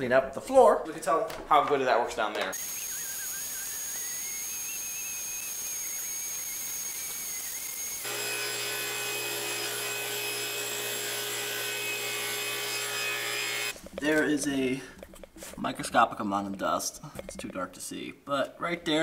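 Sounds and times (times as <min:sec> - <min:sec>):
suction air rush with whistle: 0:02.6 - 0:08.0.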